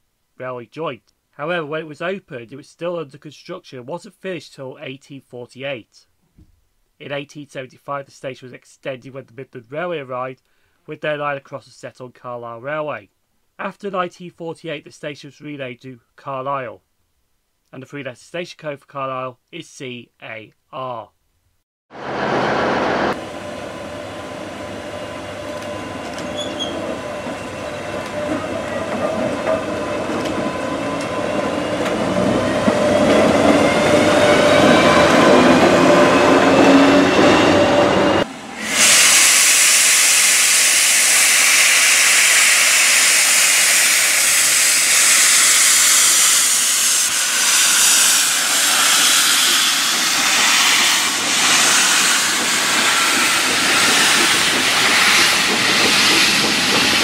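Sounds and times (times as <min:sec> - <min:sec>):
rail noise: 0:21.9 - 0:57.0
steam locomotive hissing: 0:22.0 - 0:57.0.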